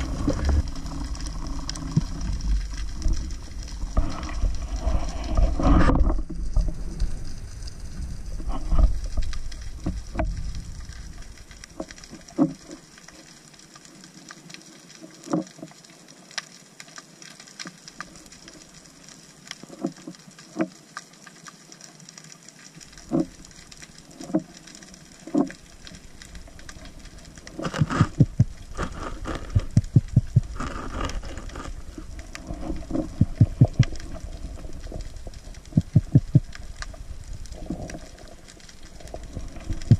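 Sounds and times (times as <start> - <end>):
underwater water rush: 0.0 - 39.9
underwater clicks and taps: 8.4 - 10.4, 11.6 - 12.8, 15.0 - 15.7, 22.9 - 26.0, 26.6 - 28.6, 29.4 - 34.2, 34.8 - 37.0.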